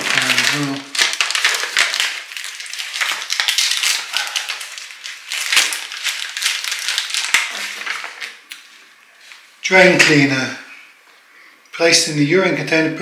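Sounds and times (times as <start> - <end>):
paper and plastic crinkling: 0.0 - 10.2.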